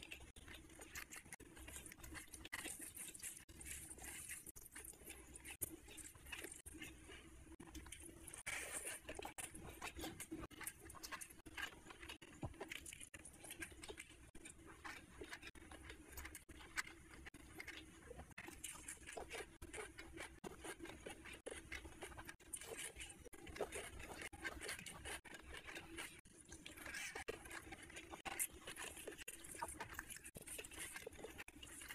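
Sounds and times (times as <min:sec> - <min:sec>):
fingers squishing rice: 0:00.0 - 0:31.9
wet chewing: 0:00.0 - 0:31.9.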